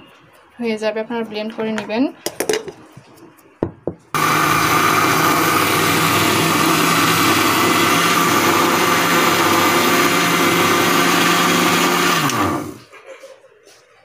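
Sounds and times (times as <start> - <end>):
mixer grinder motor whine: 4.2 - 12.8.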